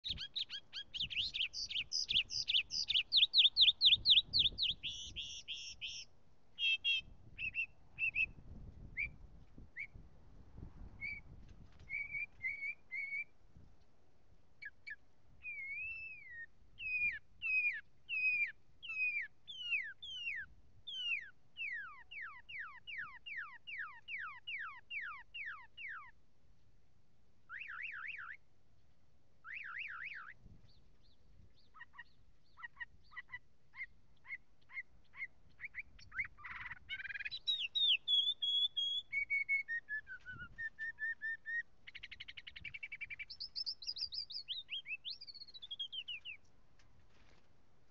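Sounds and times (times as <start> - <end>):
mockingbird singing: 0.0 - 8.4, 14.6 - 26.2, 27.5 - 28.4, 29.4 - 30.4, 31.0 - 46.4.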